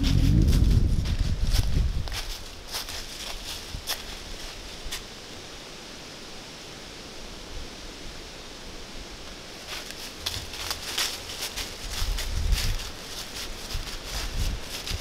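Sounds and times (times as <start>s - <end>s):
hooves crunching in dry leaves: 0.0s - 5.1s, 9.6s - 15.0s.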